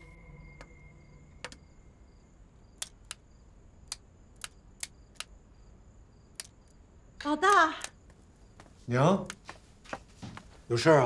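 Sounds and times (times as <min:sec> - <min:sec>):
abacus beads clicking: 0:02.8 - 0:05.4, 0:06.3 - 0:06.7.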